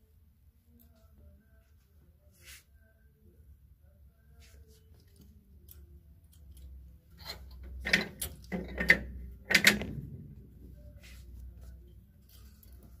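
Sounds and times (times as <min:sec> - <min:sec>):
clothes hangers clacking on rail: 0:06.4 - 0:10.1.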